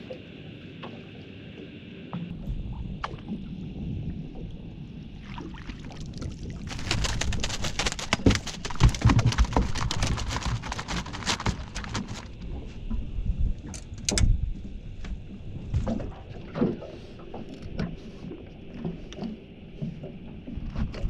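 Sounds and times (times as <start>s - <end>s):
water against hull: 0.0s - 21.0s
fish flapping in net: 6.7s - 12.4s
net knocking: 6.7s - 12.4s.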